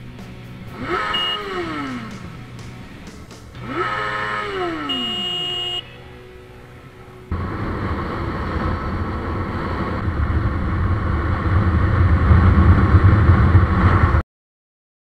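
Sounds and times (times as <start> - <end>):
motorcycle engine running: 0.0 - 14.2
wind rush: 7.3 - 14.2.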